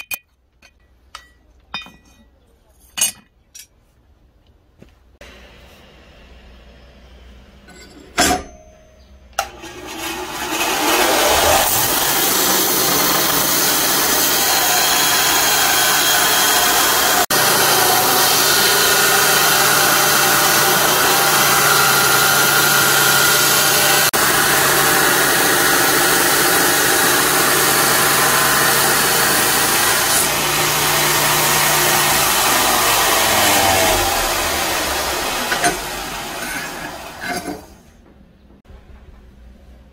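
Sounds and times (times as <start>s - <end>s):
belt grinder grinding steel: 9.4s - 37.8s
low motor hum: 30.2s - 37.3s.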